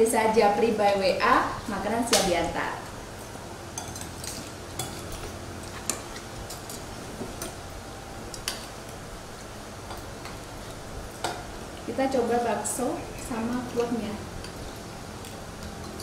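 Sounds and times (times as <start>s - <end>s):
low room hum: 0.0s - 16.0s
cutlery clinking on plates: 3.8s - 7.6s.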